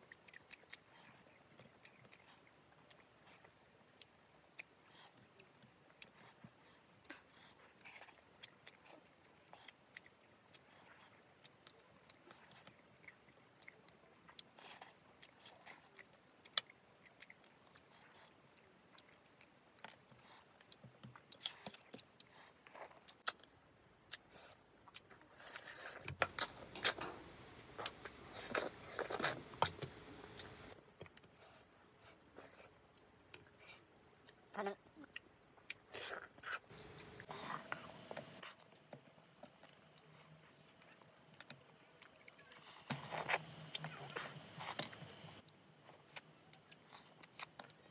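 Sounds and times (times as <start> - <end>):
wet chewing: 0.0 - 23.5, 33.4 - 47.9.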